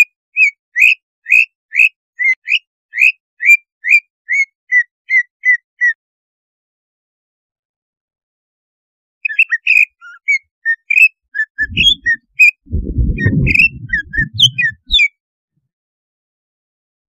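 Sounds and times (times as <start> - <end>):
bird chirps and whistles: 9.2 - 15.1
low rumbling noise: 11.6 - 15.0.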